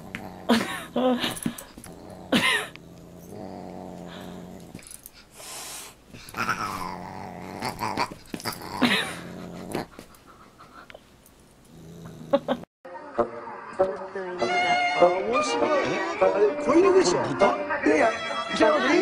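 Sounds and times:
dog growling: 0.0s - 5.2s, 6.2s - 10.4s, 11.6s - 12.7s.

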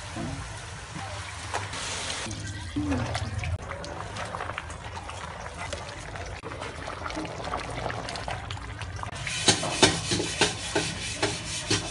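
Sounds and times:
broth sloshing: 1.4s - 11.9s
ladle stirring soup: 3.0s - 11.9s
sharp rubbing strokes: 9.4s - 11.9s.

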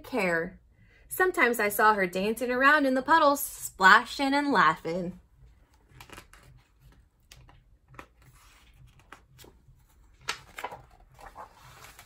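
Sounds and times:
book page turning: 5.6s - 12.0s.

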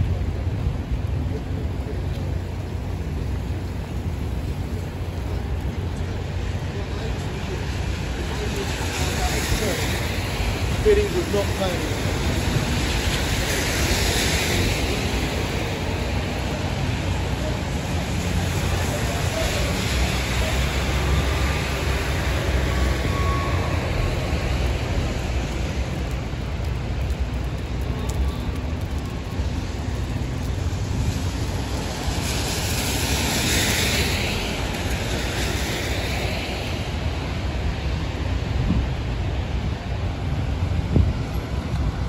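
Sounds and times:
traffic engine noise: 0.0s - 42.0s
tyres hissing on wet road: 0.0s - 42.0s.

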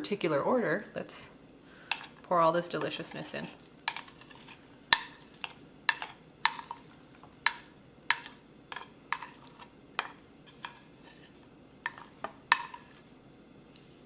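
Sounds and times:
wooden spoon scraping ceramic plate: 2.8s - 4.6s, 8.7s - 13.1s.

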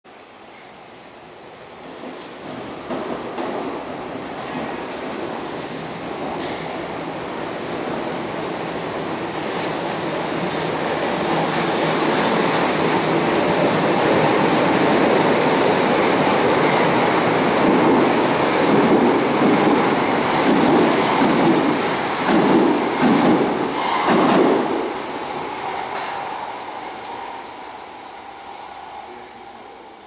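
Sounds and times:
train rumbling through station: 0.1s - 30.0s.

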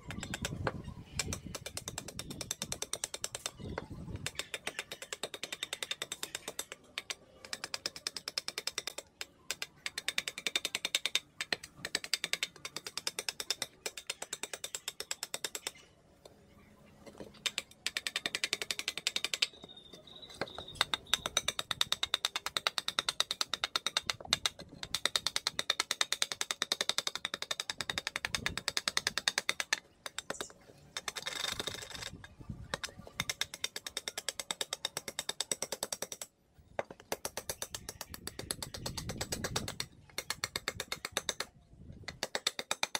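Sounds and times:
steel blade scraping wood: 29.0s - 35.6s.

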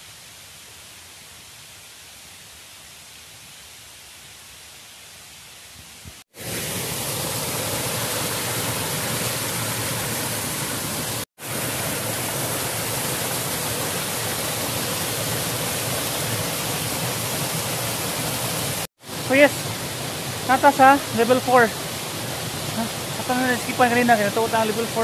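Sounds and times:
waterfall rushing and splashing: 6.3s - 25.0s.

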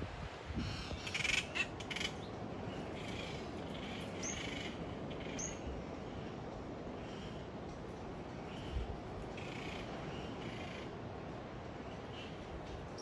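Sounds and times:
wind noise: 0.0s - 13.0s
birds calling roughly: 0.6s - 5.8s, 8.4s - 11.0s.

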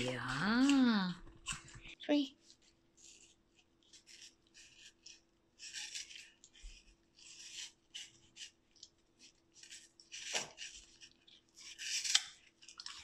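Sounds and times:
dog crunching apple: 9.6s - 13.0s.

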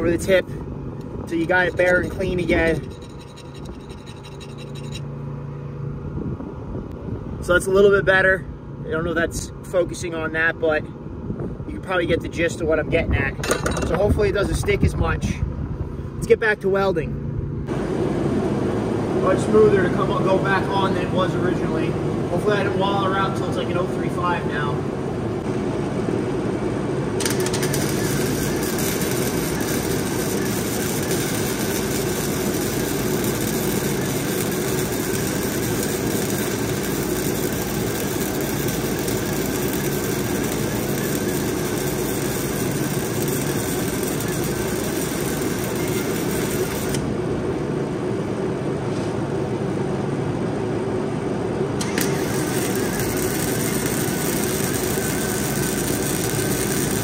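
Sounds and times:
steady low hum: 0.0s - 57.0s
welding arc crackling: 1.2s - 5.0s, 27.1s - 47.2s, 51.8s - 57.0s.

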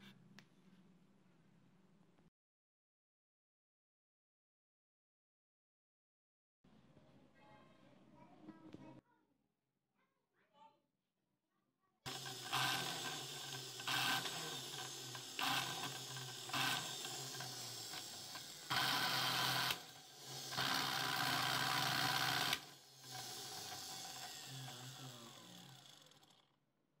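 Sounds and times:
blender motor humming: 12.1s - 26.6s.

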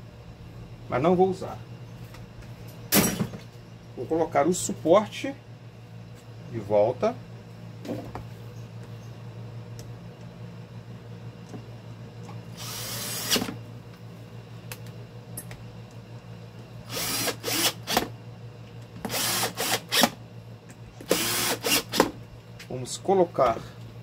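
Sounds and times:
steady low hum: 0.0s - 24.0s
power screwdriver driving screws: 19.1s - 20.1s, 21.1s - 22.1s.

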